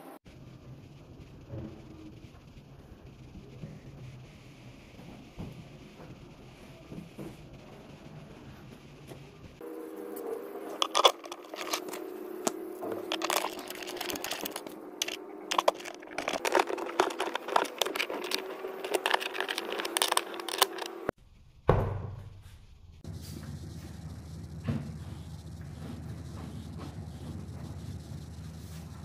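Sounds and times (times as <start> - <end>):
metal bolts clicking and scraping: 10.8 - 21.1
thump: 21.7 - 22.4
steady low hum: 22.4 - 29.0.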